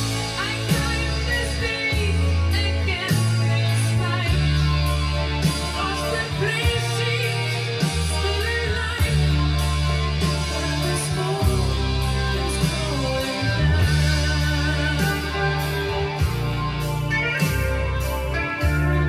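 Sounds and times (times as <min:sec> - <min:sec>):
rock music from cassette: 0:00.0 - 0:19.0.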